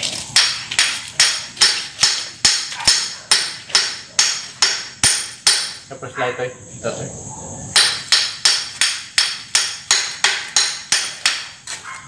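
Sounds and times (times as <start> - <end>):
hammer striking metal: 0.4 - 5.8, 7.8 - 11.6.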